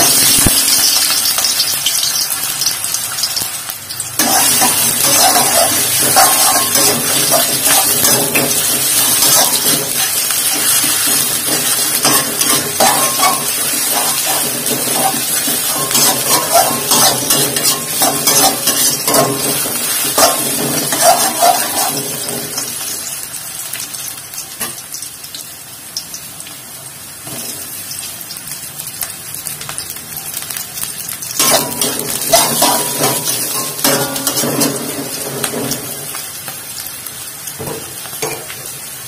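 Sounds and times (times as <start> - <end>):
onion sizzling in oil: 0.0 - 39.0
metal spatula scraping pan: 4.2 - 22.8, 31.4 - 36.2.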